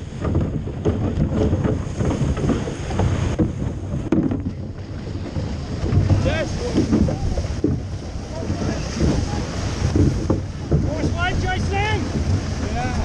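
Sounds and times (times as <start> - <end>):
water rushing along hull: 0.0 - 13.0
wind buffeting microphone: 0.0 - 13.0.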